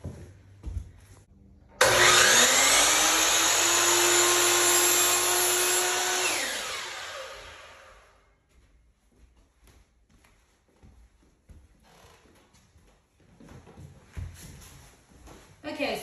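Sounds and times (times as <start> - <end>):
miter saw whining and cutting: 1.8 - 8.2.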